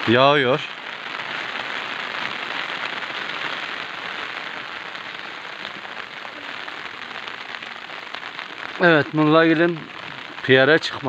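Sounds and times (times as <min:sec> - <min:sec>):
steady rain falling: 0:00.0 - 0:11.0.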